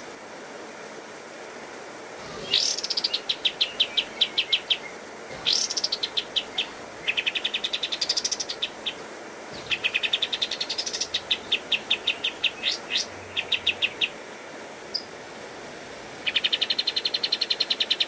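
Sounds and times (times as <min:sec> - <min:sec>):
bird song of sharp notes: 0:02.3 - 0:09.0, 0:09.6 - 0:14.2, 0:16.2 - 0:18.0.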